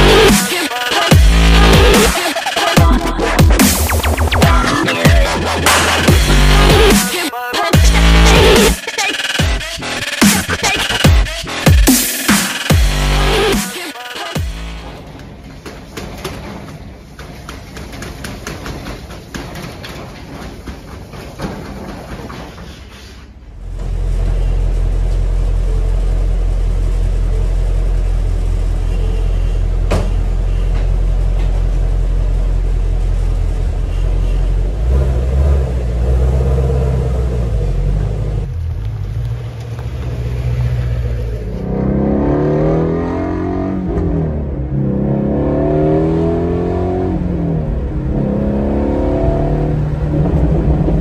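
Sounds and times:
car engine idling: 23.5 - 42.1
car accelerating through gears: 39.2 - 51.0.

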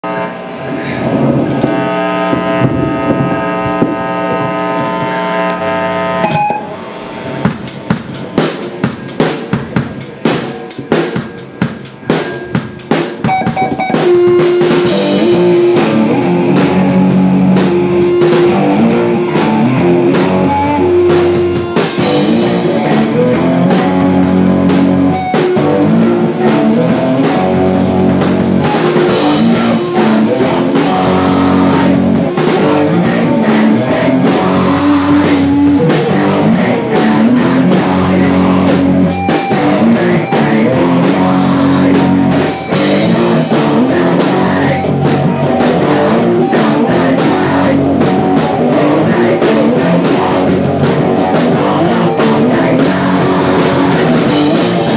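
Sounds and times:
drum kit playing: 0.0 - 54.9
electric guitar riff: 0.0 - 54.9
held band chord ringing: 4.9 - 7.0.

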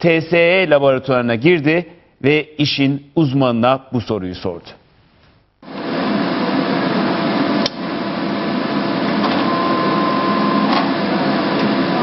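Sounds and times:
steady high tone: 9.4 - 10.8.

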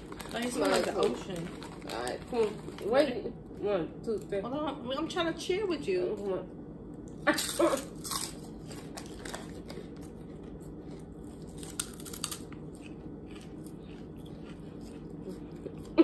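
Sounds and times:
crunchy snack chewing: 7.3 - 16.0.

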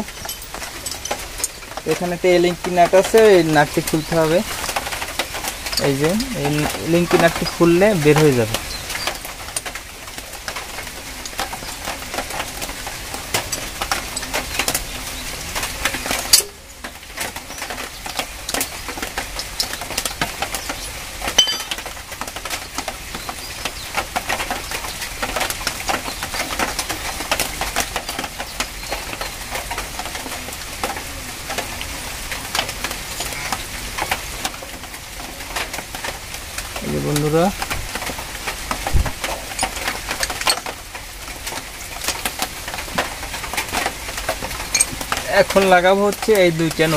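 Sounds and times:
small metallic clicks and rattles: 0.0 - 2.0, 37.6 - 40.9, 41.5 - 46.9.

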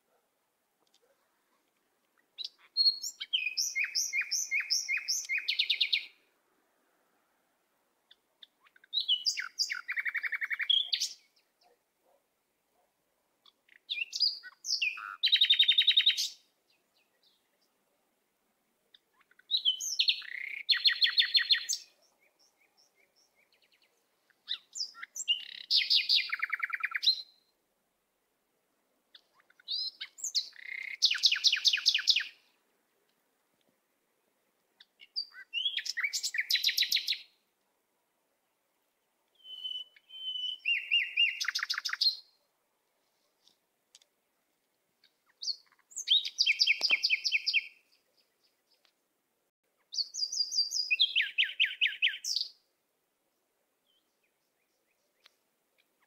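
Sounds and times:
songbird singing with trills: 2.2 - 6.3, 8.1 - 11.8, 13.4 - 17.8, 18.9 - 27.5, 29.1 - 32.6, 34.8 - 37.4, 39.3 - 42.4, 45.0 - 48.9, 49.8 - 52.7, 53.8 - 56.0.

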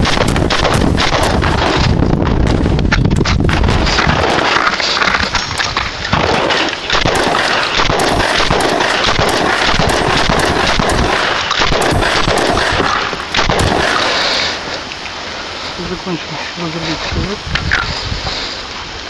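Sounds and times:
shotgun firing rapid shots: 0.0 - 2.2, 3.5 - 5.2, 6.1 - 14.6.

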